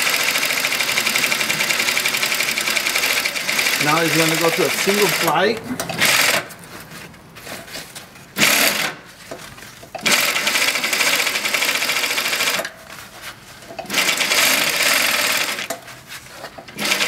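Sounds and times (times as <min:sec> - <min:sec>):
sewing machine clattering: 0:00.0 - 0:06.4, 0:10.0 - 0:12.7, 0:13.8 - 0:15.7, 0:16.7 - 0:17.0.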